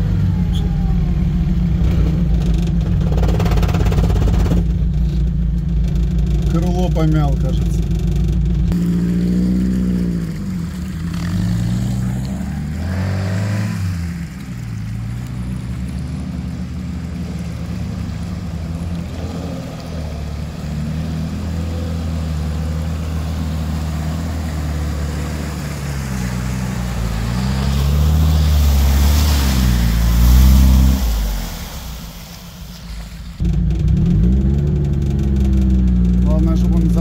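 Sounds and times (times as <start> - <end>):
off-road engine under load: 0.0 - 37.0
rushing noise: 20.3 - 33.9.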